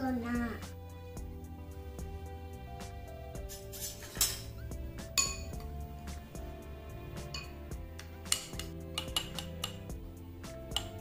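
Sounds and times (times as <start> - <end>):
background music: 0.0 - 11.0
metal spoon clinking on glass: 5.2 - 5.6, 7.3 - 7.6, 8.3 - 9.8.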